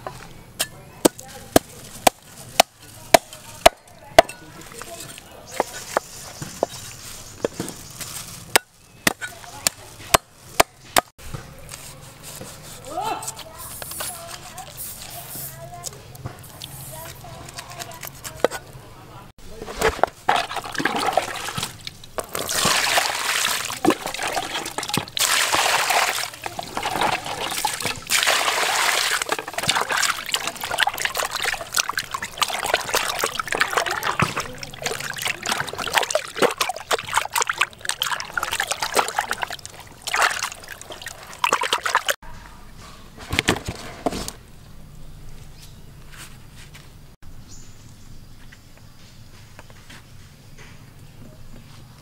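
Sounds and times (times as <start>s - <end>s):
fish being rubbed and washed: 11.6s - 15.7s, 19.6s - 42.2s
water sloshing in a plastic basin: 19.5s - 42.2s.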